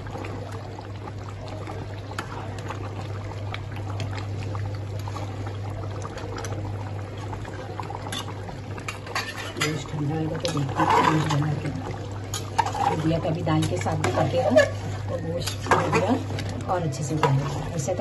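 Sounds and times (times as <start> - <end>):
curry bubbling in a pot: 0.0 - 18.0
steady low hum: 0.0 - 18.0
metal spatula scraping a pot: 8.9 - 11.6, 12.3 - 16.2, 17.1 - 18.0.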